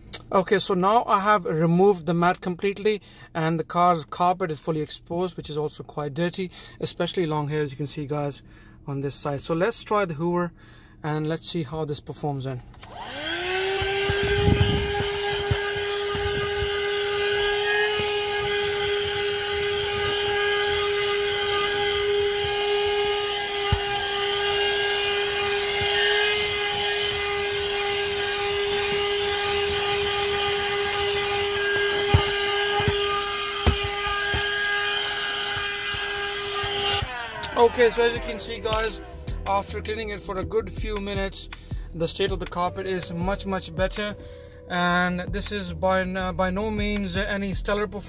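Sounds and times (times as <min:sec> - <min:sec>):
handheld vacuum motor whine: 0:12.8 - 0:39.4.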